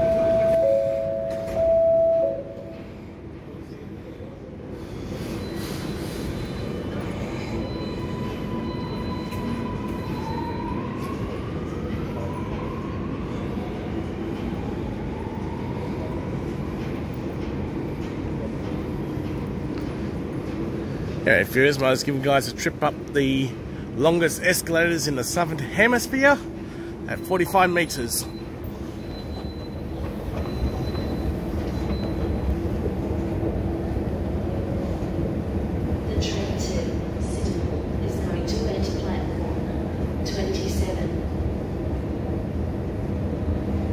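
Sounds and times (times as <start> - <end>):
metro platform rumble and hiss: 0.0 - 43.9.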